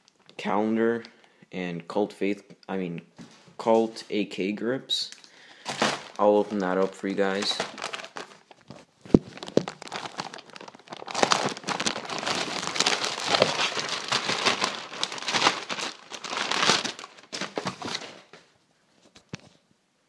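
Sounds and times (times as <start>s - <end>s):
plastic bag crinkling: 5.6s - 18.4s.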